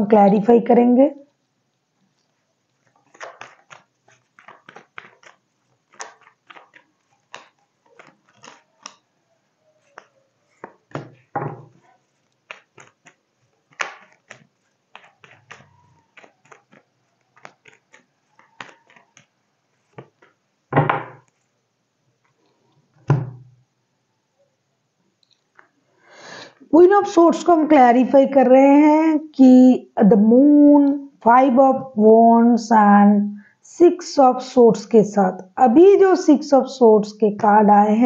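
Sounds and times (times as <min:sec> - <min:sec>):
cards being shuffled: 0:02.8 - 0:09.2, 0:09.8 - 0:21.4.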